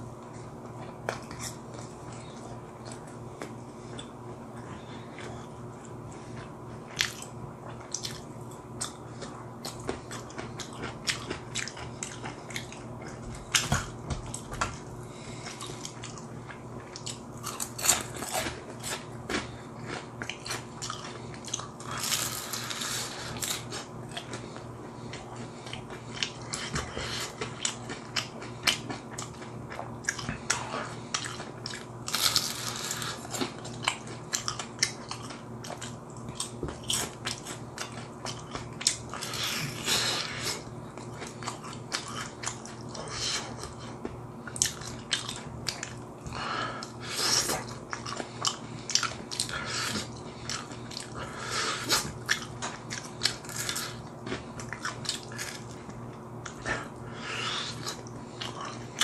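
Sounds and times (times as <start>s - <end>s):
crunching fried chicken: 15.4s - 24.4s, 25.1s - 43.9s, 47.2s - 56.7s
wet chewing: 15.4s - 59.0s.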